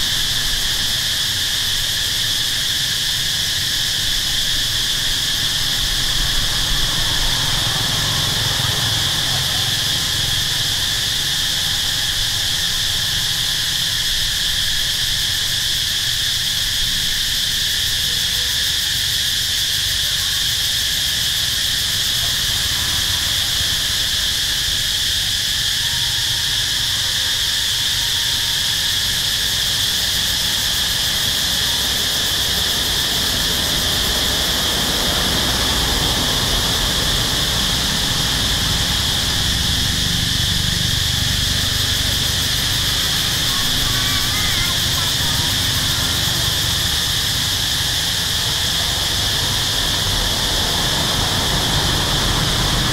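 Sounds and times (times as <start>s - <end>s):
insects buzzing: 0.0s - 52.9s
low background rumble: 29.5s - 52.9s.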